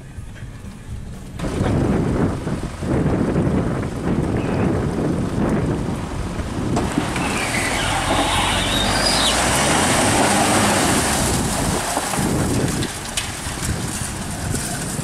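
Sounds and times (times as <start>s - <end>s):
diesel engine under load: 0.0s - 15.0s
tyres splashing through water: 5.2s - 15.0s.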